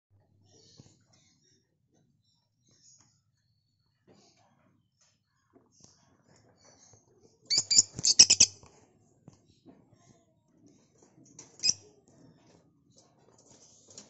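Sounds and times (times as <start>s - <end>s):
lovebird shrill chirps: 7.5s - 8.6s.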